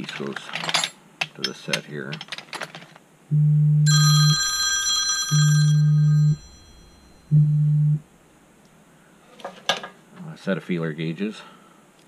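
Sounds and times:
loud low buzzes: 0:03.3 - 0:03.9, 0:05.8 - 0:08.5
bright bell-like ringing: 0:03.9 - 0:07.4.

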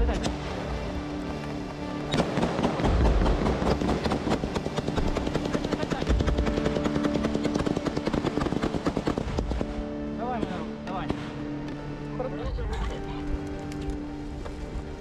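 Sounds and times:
machine gun firing bursts: 0:02.2 - 0:10.6.

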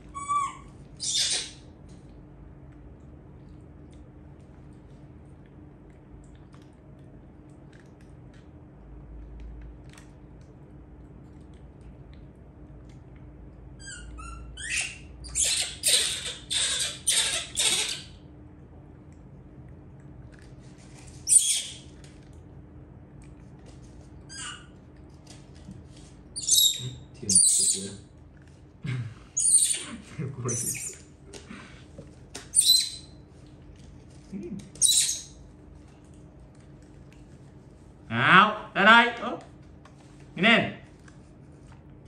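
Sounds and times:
baby monkey squealing: 0:00.1 - 0:01.6, 0:13.8 - 0:18.2, 0:21.2 - 0:21.8, 0:24.3 - 0:24.7, 0:26.4 - 0:28.0, 0:29.4 - 0:31.0, 0:32.5 - 0:33.1, 0:34.8 - 0:35.4.

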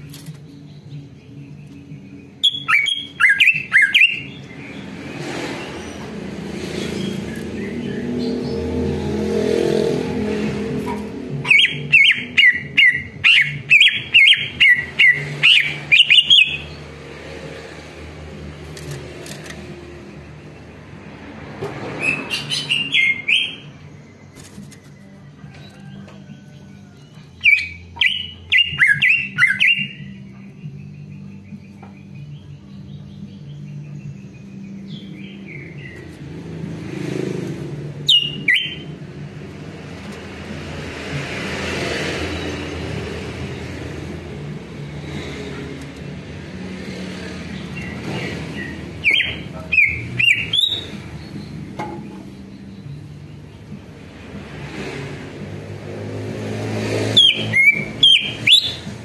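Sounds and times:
bird chirps and whistled calls: 0:02.4 - 0:04.5, 0:11.5 - 0:16.7, 0:22.0 - 0:23.7, 0:27.4 - 0:30.3, 0:38.0 - 0:38.9, 0:47.8 - 0:51.5, 0:57.1 - 0:59.0.

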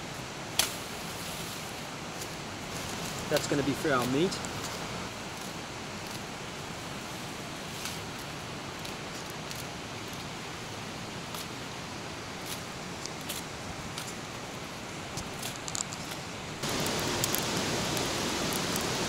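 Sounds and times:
leafy branches rustling: 0:00.0 - 0:19.0
steady rushing hiss: 0:00.0 - 0:19.0
twigs cracking: 0:07.8 - 0:10.3, 0:15.1 - 0:18.9.

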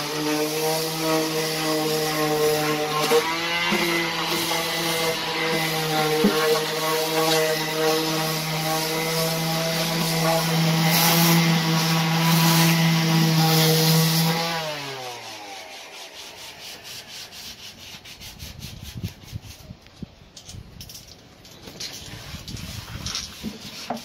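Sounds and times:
orbital sander running: 0:00.0 - 0:17.4.

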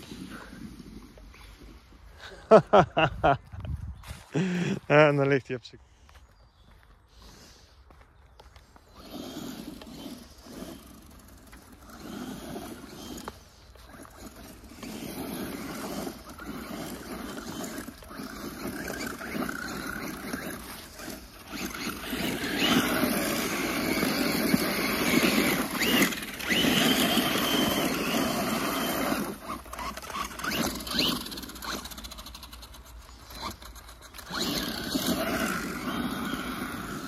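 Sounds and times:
toy car motor and tyres: 0:00.0 - 0:02.4, 0:08.4 - 0:37.0
high motor whine: 0:08.7 - 0:37.0.

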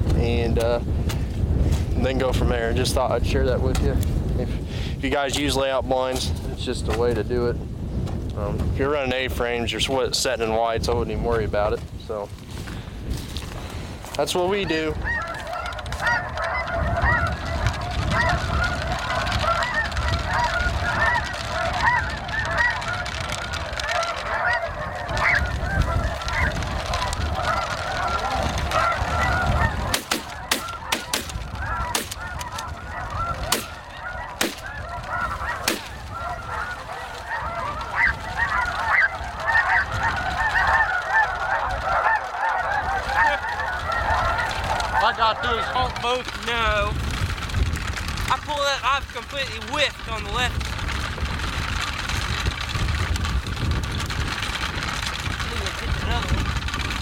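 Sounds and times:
geese honking: 0:14.2 - 0:46.8.

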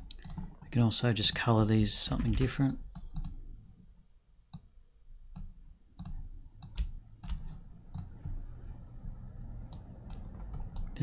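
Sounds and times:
computer mouse clicking: 0:00.0 - 0:00.6, 0:02.2 - 0:03.4, 0:05.3 - 0:08.4, 0:09.6 - 0:11.0.

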